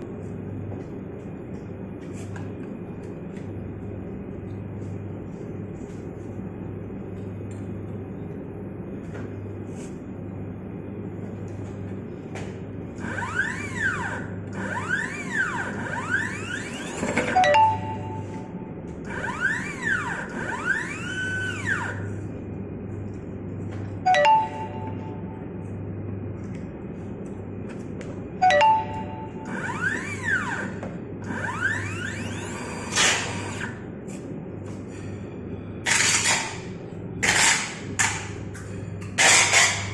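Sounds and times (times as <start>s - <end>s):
steady machine hum: 0.0s - 39.9s
machine motor whining: 13.0s - 17.2s, 19.0s - 22.1s, 29.5s - 33.8s
steady higher tone: 17.3s - 18.9s, 24.0s - 26.1s, 28.4s - 30.2s.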